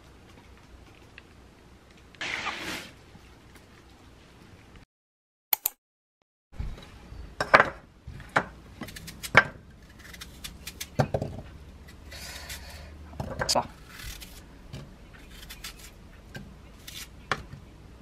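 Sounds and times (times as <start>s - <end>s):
knife peeling an apple: 8.8s - 11.0s, 11.8s - 13.0s, 13.6s - 14.5s, 15.1s - 16.0s, 16.7s - 17.2s.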